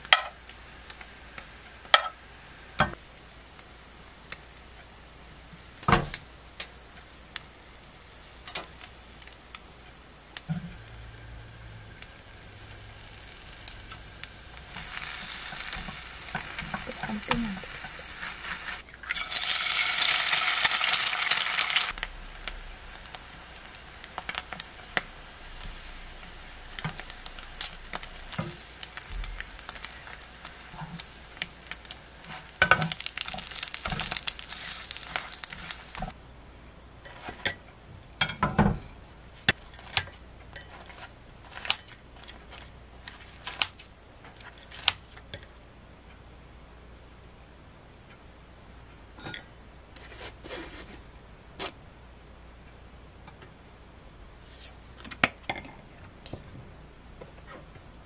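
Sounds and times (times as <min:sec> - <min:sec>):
food sizzling in a frying pan: 0:00.0 - 0:36.2.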